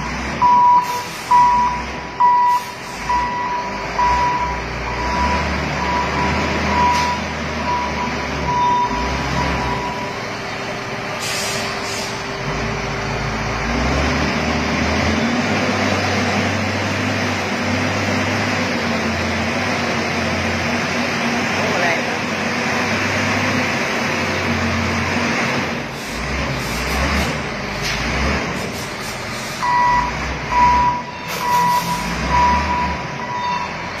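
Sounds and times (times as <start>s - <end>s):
reversing alarm beeping: 0.0s - 10.4s, 29.6s - 34.0s
diesel engine running: 0.0s - 34.0s
short hisses: 11.2s - 12.2s.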